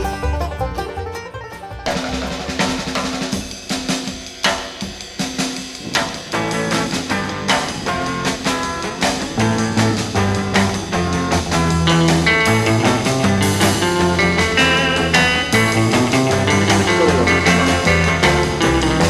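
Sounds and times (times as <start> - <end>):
drum-led rock music: 0.0 - 19.0
bass line: 6.3 - 19.0
sustained notes: 16.7 - 18.2.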